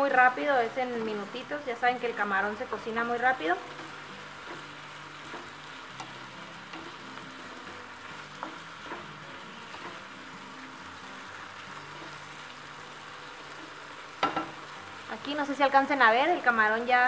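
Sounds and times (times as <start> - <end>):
food sizzling in a skillet: 0.0 - 17.0
wooden spoon clicking on pan: 14.2 - 14.7.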